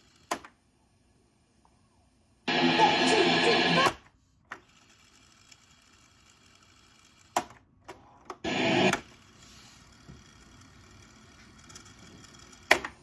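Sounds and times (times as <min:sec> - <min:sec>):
boombox playback: 0:02.5 - 0:04.0, 0:08.4 - 0:09.1.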